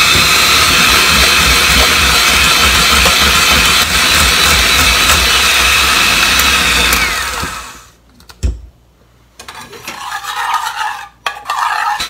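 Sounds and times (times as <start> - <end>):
electric mixer whining: 0.0 - 7.9.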